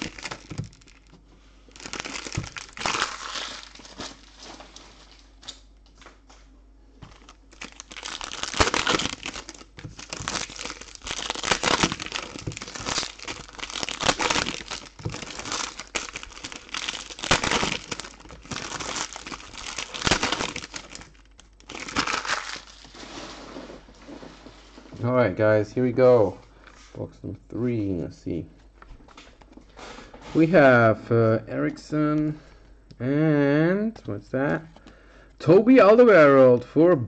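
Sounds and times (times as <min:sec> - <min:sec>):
wrappers crinkling and tearing: 0:00.0 - 0:05.6, 0:07.0 - 0:24.3.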